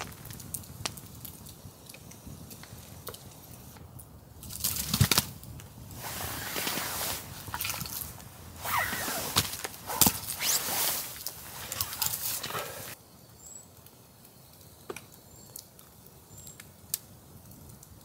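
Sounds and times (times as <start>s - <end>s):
campfire crackling and popping: 0.0s - 18.0s
steady hiss: 5.7s - 14.9s
rustling burst: 5.9s - 13.0s.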